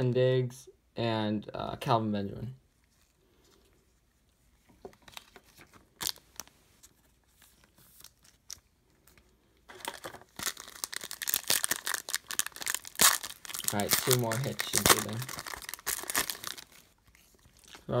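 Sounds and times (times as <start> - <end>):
foil wrapper crinkling and tearing: 9.7 - 18.0.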